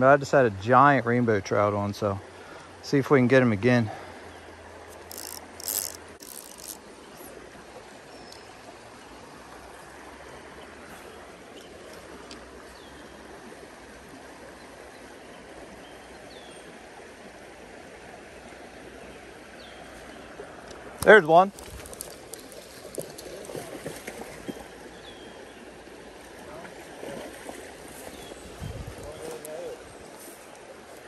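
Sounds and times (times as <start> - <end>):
creek water rushing: 0.0 - 31.0
clicking and rustling: 4.9 - 6.8, 21.5 - 23.2.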